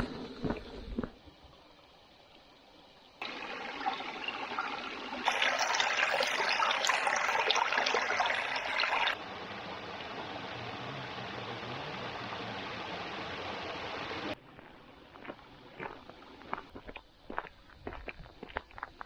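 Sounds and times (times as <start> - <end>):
brook flowing and splashing: 3.2 - 14.4.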